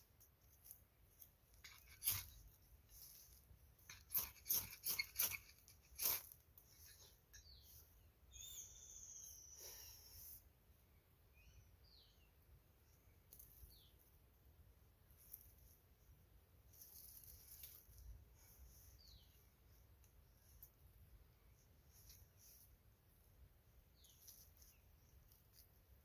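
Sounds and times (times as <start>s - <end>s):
knife scraping a stick: 0.2s - 7.8s, 16.7s - 19.2s, 24.0s - 25.8s
bird whistling falling notes: 8.3s - 9.6s.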